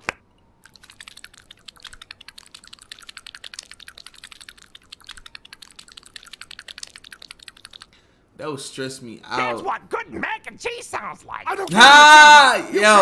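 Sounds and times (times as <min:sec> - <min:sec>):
suction cups squelching on glass: 0:00.6 - 0:08.0.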